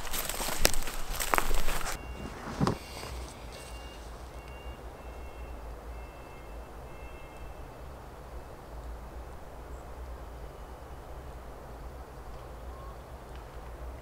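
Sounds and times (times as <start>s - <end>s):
faint high whistles: 1.8s - 7.9s.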